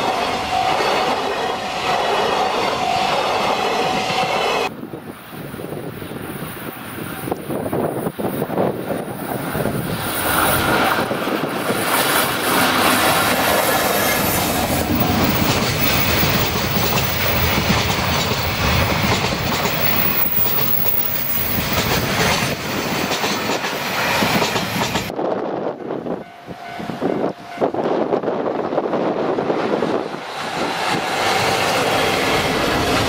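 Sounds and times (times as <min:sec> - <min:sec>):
freight train rumbling past: 0:00.0 - 0:33.0
wheels clacking over rail joints: 0:10.2 - 0:25.1.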